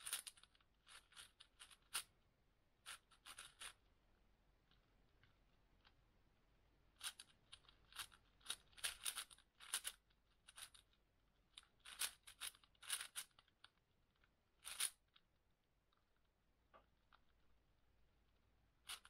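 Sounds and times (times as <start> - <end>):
puzzle cube plastic clicks: 7.0 - 15.2.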